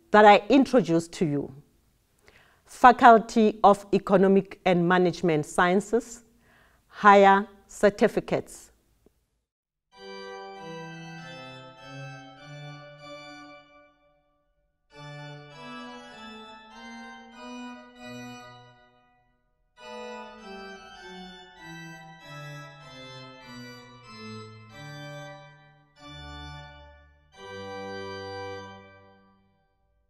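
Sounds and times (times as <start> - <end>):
slow organ music: 9.9 - 30.0.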